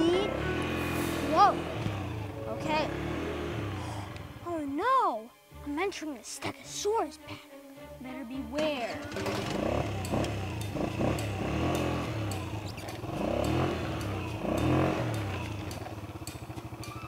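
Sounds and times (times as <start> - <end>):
atv engine revving: 0.0 - 4.8, 8.5 - 17.0.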